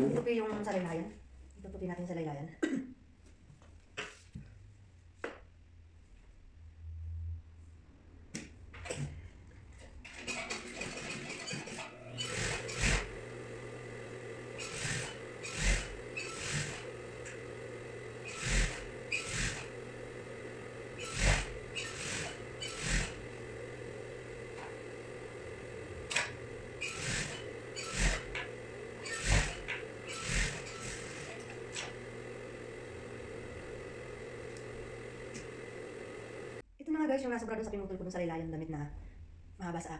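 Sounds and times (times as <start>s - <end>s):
sewing machine motor humming: 9.8s - 36.6s.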